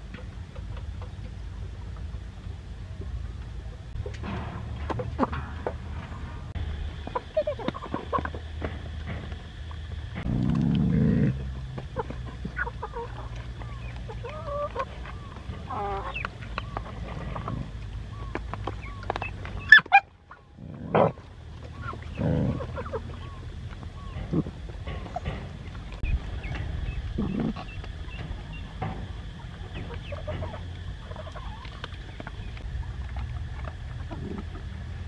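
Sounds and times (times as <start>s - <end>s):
chickens clucking: 0.0s - 35.0s
low rumbles: 0.0s - 35.0s
dogs chewing: 30.1s - 35.0s.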